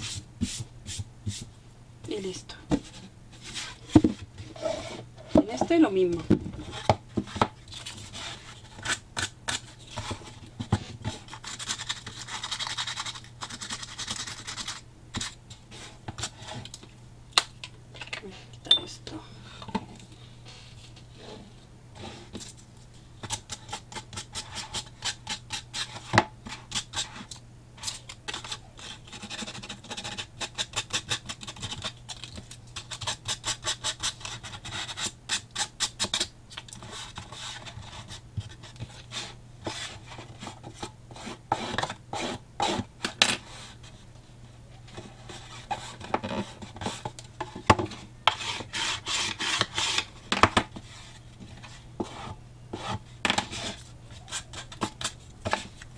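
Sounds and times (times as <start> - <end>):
sandpaper rubbing cardboard: 10.8 - 16.6, 32.8 - 36.2, 36.8 - 42.9, 48.3 - 50.1.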